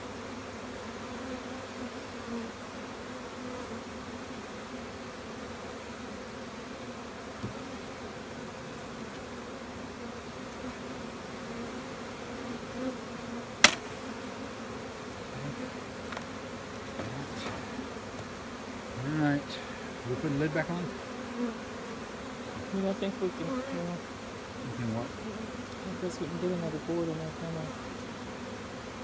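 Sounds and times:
honeybees buzzing: 0.0 - 29.0
sharp knock: 13.6 - 13.9.

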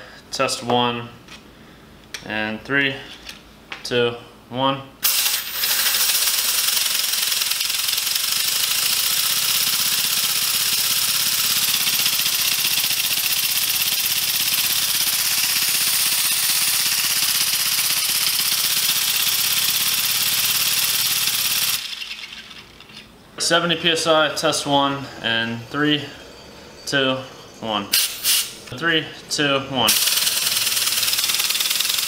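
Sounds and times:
compressed air engine running: 5.0 - 22.5, 27.4 - 28.7, 29.9 - 32.0.

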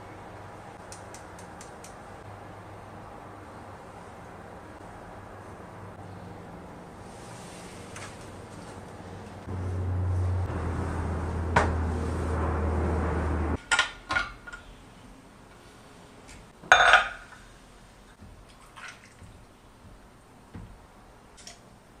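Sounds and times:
low hum with rushing noise: 0.0 - 13.6
glass jug clinking on metal: 16.7 - 17.3.

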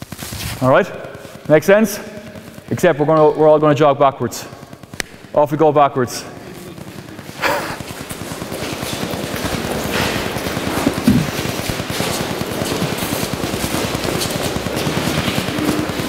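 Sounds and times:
footsteps jogging on artificial turf: 10.7 - 12.2.

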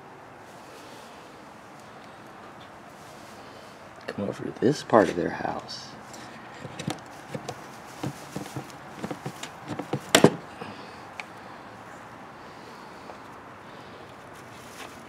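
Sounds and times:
footsteps: 6.1 - 10.5
hutch door click: 6.6 - 7.6, 8.5 - 10.5
light knocks on wood: 6.7 - 10.4.

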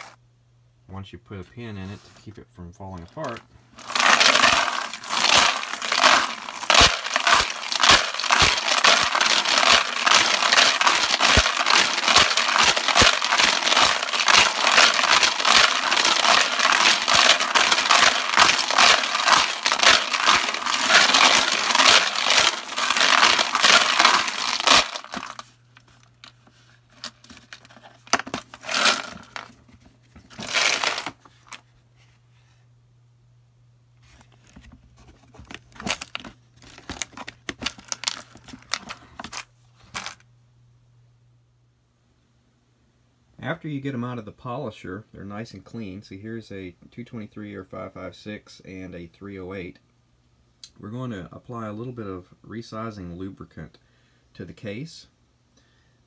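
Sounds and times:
brass cases rattling in tumbler: 3.1 - 25.5, 27.0 - 29.5, 30.3 - 31.6, 35.4 - 39.4.

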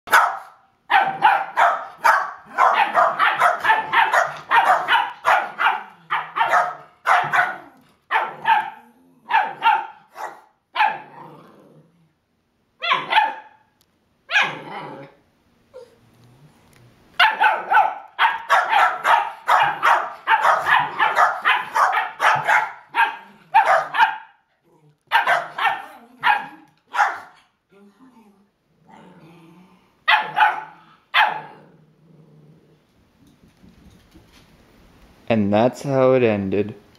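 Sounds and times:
dogs barking: 0.1 - 11.2, 12.8 - 13.6, 17.2 - 24.4, 25.1 - 27.4, 30.1 - 31.6.

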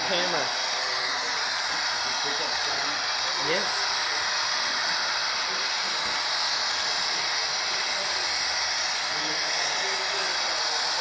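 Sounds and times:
faint voices murmuring: 0.0 - 11.0.

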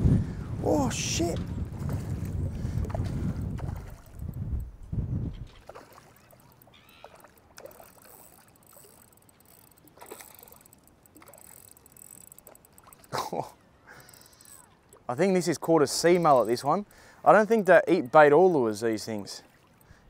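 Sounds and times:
shallow water splashing: 1.6 - 4.3, 5.3 - 17.2, 17.9 - 20.0
small clicks: 5.5 - 13.2.

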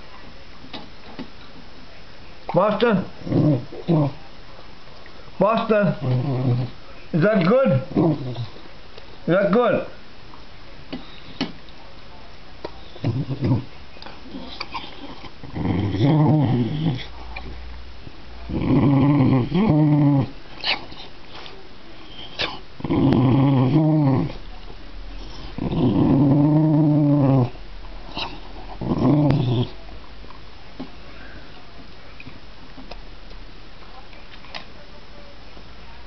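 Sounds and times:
dog growling: 3.0 - 4.2, 5.6 - 8.7, 12.9 - 17.5, 18.5 - 21.1, 22.1 - 24.4, 25.1 - 29.8.

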